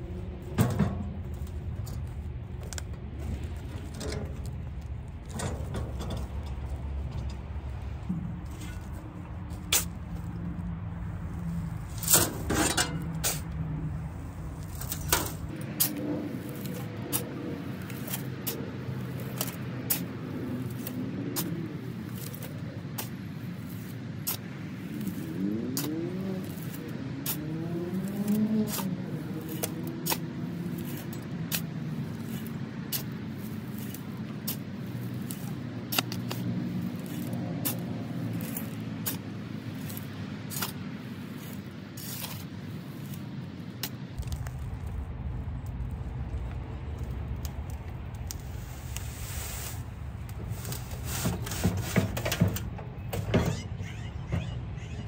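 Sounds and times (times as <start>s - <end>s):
vehicle passing: 0.0s - 53.0s
road traffic hum: 0.0s - 55.0s
shovel scraping soil: 8.5s - 10.4s, 11.0s - 44.5s, 48.3s - 52.6s
shovel clinking on metal wheelbarrow: 11.9s - 13.5s.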